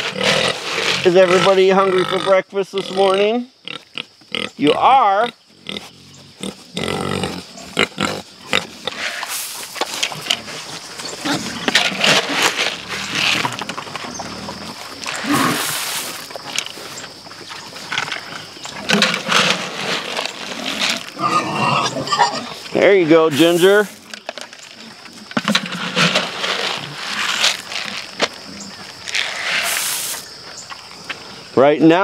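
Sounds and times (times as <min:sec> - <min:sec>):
pigs squealing and grunting: 0:00.0 - 0:09.4, 0:10.1 - 0:16.1, 0:17.7 - 0:22.7.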